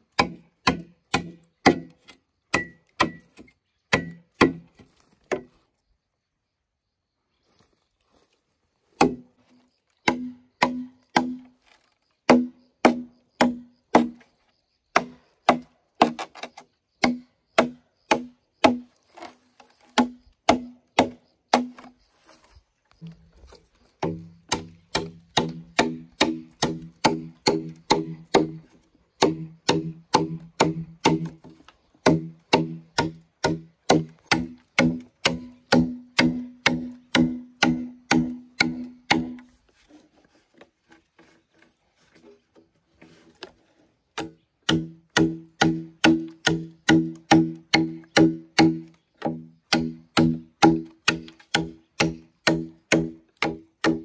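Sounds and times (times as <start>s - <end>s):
blade chopping bamboo: 0.1s - 5.5s, 9.0s - 9.3s, 10.0s - 11.5s, 12.3s - 14.2s, 15.0s - 21.9s, 24.0s - 39.5s, 44.2s - 54.0s.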